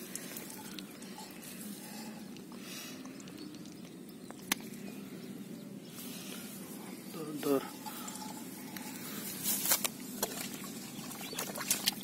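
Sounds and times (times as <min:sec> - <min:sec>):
faint outdoor background noise: 0:00.0 - 0:12.0.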